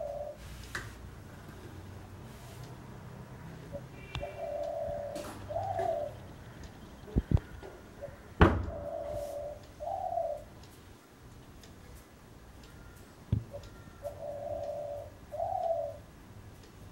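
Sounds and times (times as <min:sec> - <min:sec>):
dove cooing: 0:00.0 - 0:00.4, 0:03.6 - 0:10.5, 0:12.8 - 0:16.1.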